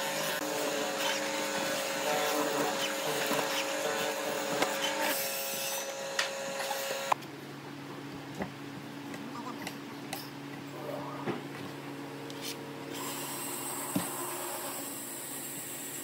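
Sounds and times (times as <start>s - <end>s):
mortiser motor hum: 0.0s - 7.2s.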